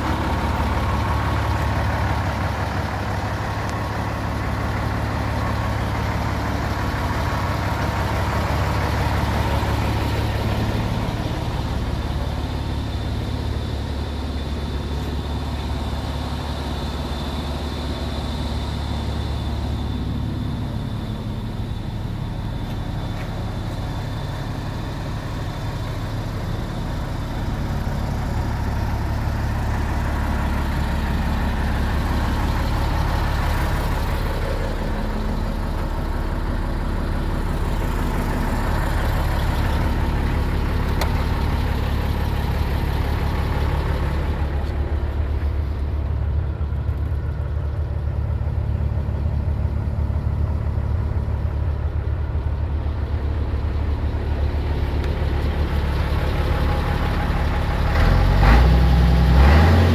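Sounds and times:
truck diesel engine idling: 0:00.0 - 0:59.9.

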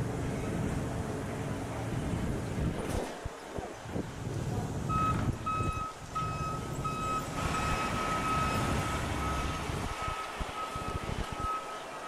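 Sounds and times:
wind noise: 0:00.0 - 0:11.8
engine rumble: 0:00.0 - 0:12.0
truck reversing alarm beeping: 0:04.9 - 0:12.0.

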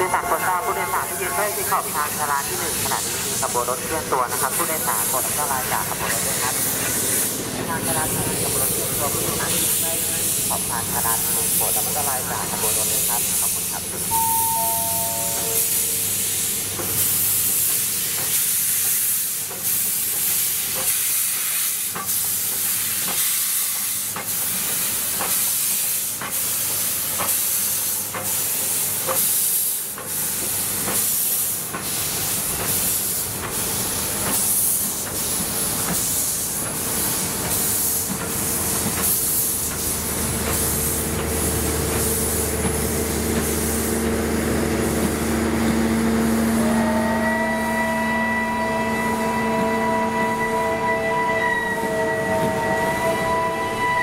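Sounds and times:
steam locomotive hissing: 0:00.0 - 0:54.0
chime of falling notes: 0:14.1 - 0:16.1.

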